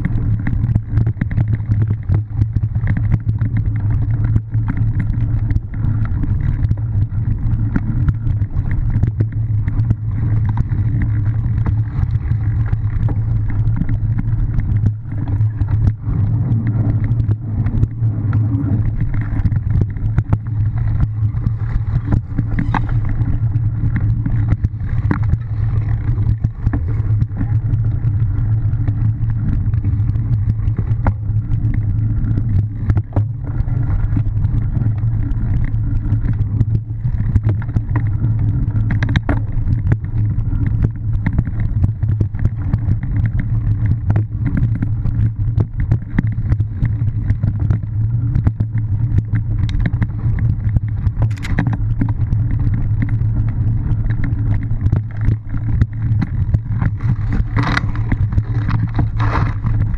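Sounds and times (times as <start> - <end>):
bike clicks and rattles: 0.0 - 59.9
wind rumble on camera: 0.0 - 59.9.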